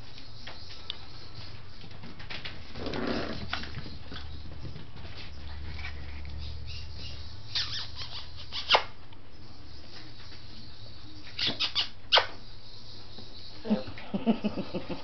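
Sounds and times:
paws clicking on vinyl floor: 0.0 - 7.2.

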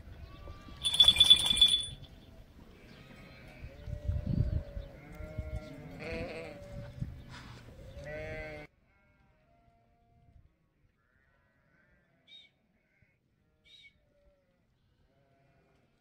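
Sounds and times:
sheep and lambs bleating: 2.8 - 6.7, 8.0 - 10.1, 11.0 - 12.2, 15.1 - 15.9.

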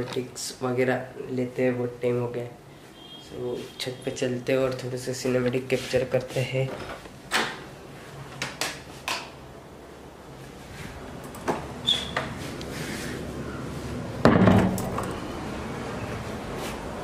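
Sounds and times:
short squeak: 11.8 - 12.3
thump and rattle: 14.2 - 15.1.

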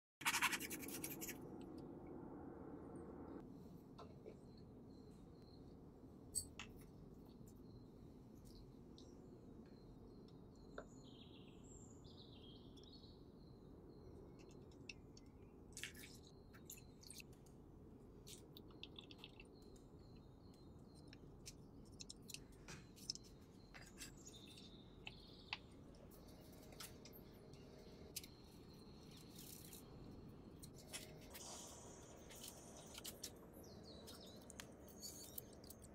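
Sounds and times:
faint bird chirps: 31.4 - 35.9.

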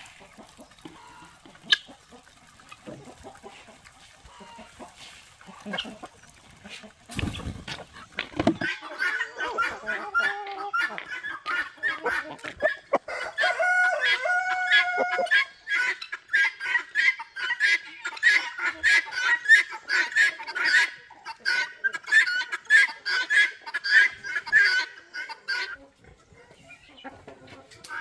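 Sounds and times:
chickens clucking and squawking: 0.0 - 28.0
rooster crowing: 13.0 - 15.3.

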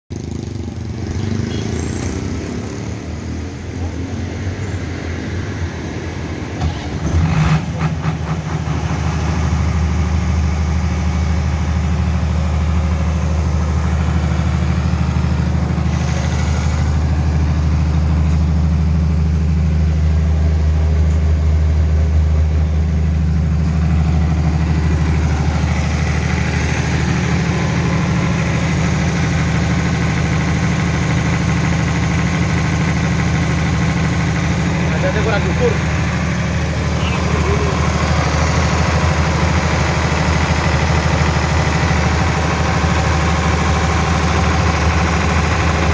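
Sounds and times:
generator deep hum: 2.9 - 45.9
generator engine cranking: 6.5 - 10.3, 23.6 - 45.9.

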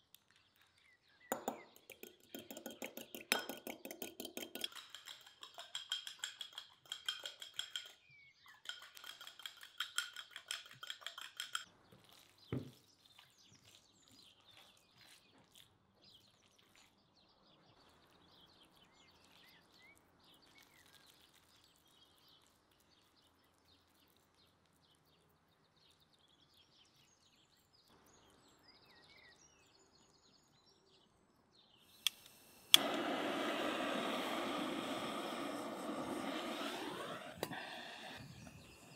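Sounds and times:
fork whisking in clay bowl: 1.3 - 16.8, 35.3 - 38.9
blowtorch hissing: 32.0 - 38.9.

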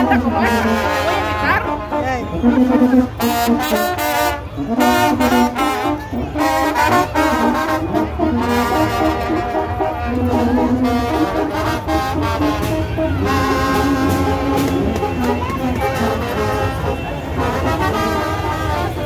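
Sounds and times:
brass band playing: 0.0 - 19.0
drum strokes: 11.9 - 17.0.

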